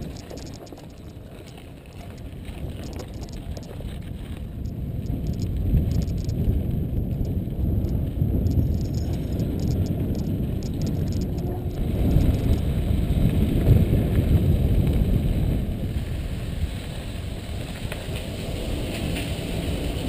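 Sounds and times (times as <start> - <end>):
bike tyres rolling on dirt: 0.0 - 20.0
wind buffeting microphone: 0.0 - 20.0.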